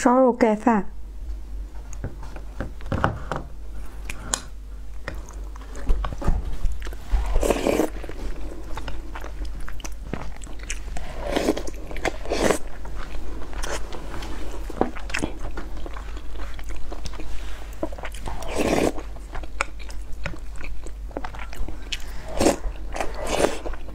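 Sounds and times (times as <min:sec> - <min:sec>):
wet chewing and mouth sounds: 0:03.8 - 0:23.9
biting and slurping: 0:05.1 - 0:23.9.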